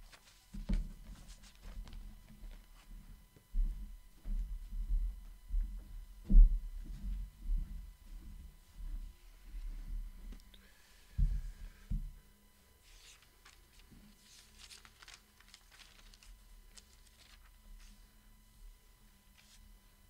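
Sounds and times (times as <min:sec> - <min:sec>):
paper pages rustling: 0:00.0 - 0:02.0, 0:12.8 - 0:18.0, 0:19.3 - 0:19.6.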